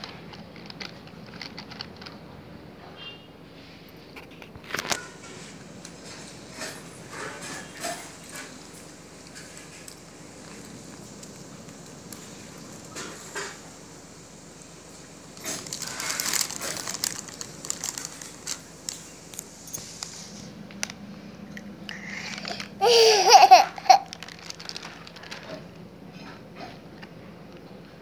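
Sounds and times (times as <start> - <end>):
plastic snack packet crinkling: 0.0 - 2.2, 14.9 - 21.0, 21.6 - 25.9
child laughing: 22.8 - 24.2.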